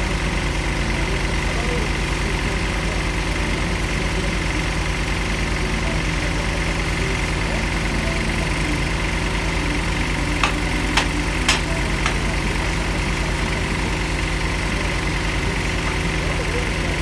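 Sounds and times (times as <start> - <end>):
drilling rig engine running: 0.0 - 17.0
sharp knocks: 10.4 - 12.4.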